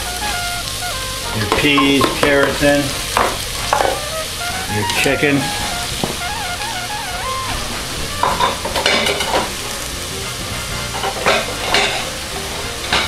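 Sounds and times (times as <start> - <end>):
food sizzling in a pot: 0.0 - 13.0
kitchen utensils clattering: 1.4 - 4.0, 7.9 - 9.8, 10.4 - 13.0.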